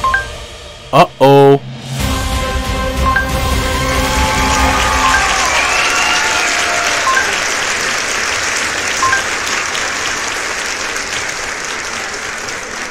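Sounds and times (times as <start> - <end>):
crowd applause: 3.4 - 12.9.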